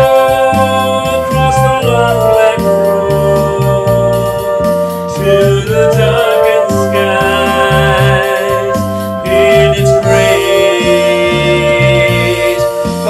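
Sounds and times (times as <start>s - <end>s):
electric bass: 0.0s - 13.0s
electronic keyboard: 0.0s - 13.0s
flute: 0.0s - 13.0s
man singing: 0.0s - 13.0s.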